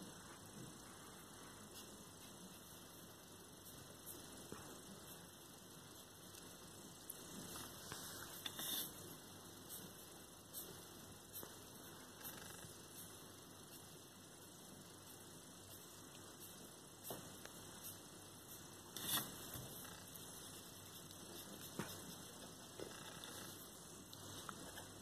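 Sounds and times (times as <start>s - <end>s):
room hum and hiss: 0.0s - 25.0s
brush pen scratching paper: 15.0s - 25.0s.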